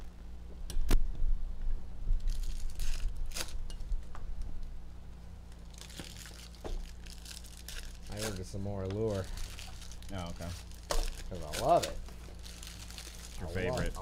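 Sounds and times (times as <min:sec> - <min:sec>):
steady low hum: 0:00.0 - 0:14.0
foil wrappers crinkling and tearing: 0:02.2 - 0:03.7, 0:05.5 - 0:14.0.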